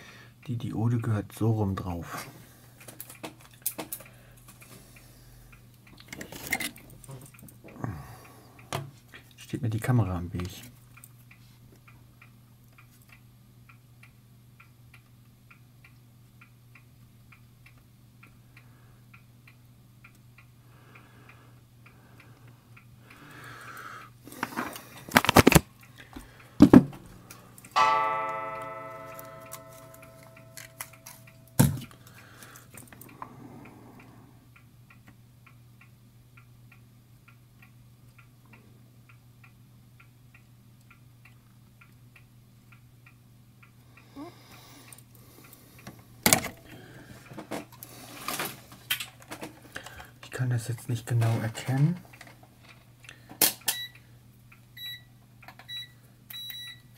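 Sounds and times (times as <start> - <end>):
low steady hum: 0.0 - 56.9
clock ticking: 27.6 - 45.6
ringing tone: 27.8 - 31.5.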